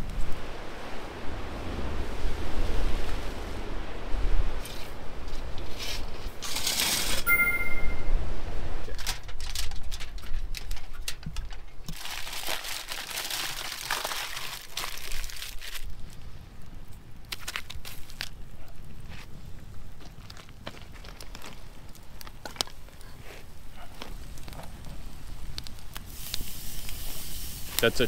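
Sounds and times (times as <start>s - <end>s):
wind rumbling on microphone: 0.0s - 6.6s
aluminium foil crinkling: 8.9s - 16.3s, 17.2s - 19.2s, 20.1s - 24.9s.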